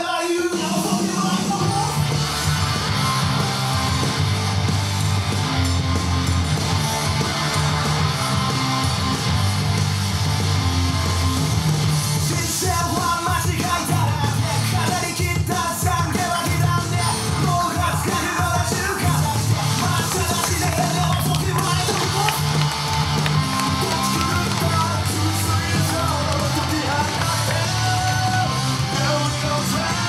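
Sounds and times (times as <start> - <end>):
rock entrance music: 0.0 - 30.0
driving bass: 0.7 - 30.0
electric guitar: 1.9 - 30.0
person singing: 12.2 - 22.6, 23.6 - 30.0.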